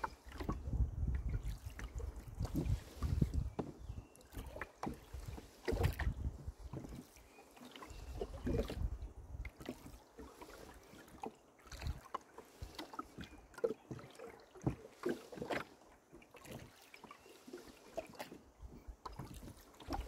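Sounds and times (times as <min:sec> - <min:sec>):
wind rumble on microphone: 0:00.0 - 0:07.0, 0:07.9 - 0:09.7
oars splashing in water: 0:00.0 - 0:20.0.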